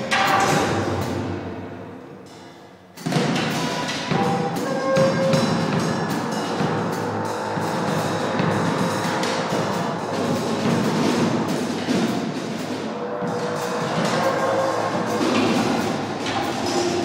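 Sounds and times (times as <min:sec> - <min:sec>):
drum kit played busily: 0:03.0 - 0:17.0
dense electronic noise: 0:04.1 - 0:17.0.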